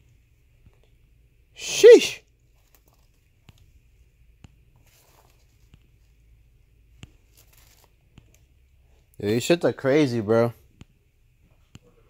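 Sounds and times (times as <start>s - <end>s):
shoe handling rustle: 4.7s - 6.2s, 7.1s - 8.4s.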